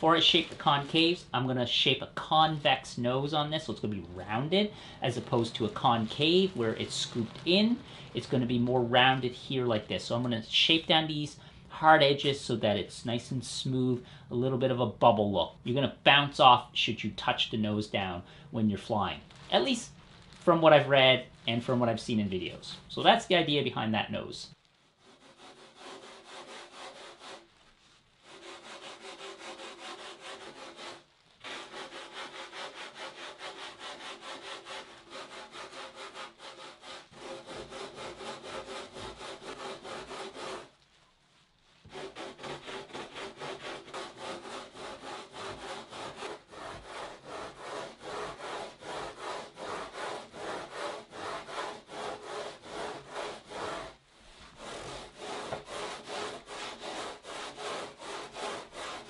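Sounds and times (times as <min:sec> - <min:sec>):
rasp scraping foam board: 0:03.6 - 0:09.3, 0:24.9 - 0:40.8, 0:41.8 - 0:59.0.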